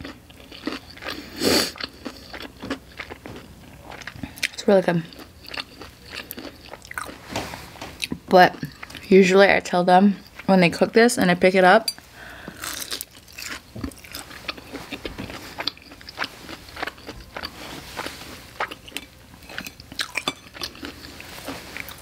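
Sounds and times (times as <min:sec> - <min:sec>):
crunchy food being bitten: 0:00.0 - 0:07.2, 0:12.6 - 0:22.0
crunching while chewing: 0:00.0 - 0:07.3, 0:12.4 - 0:22.0.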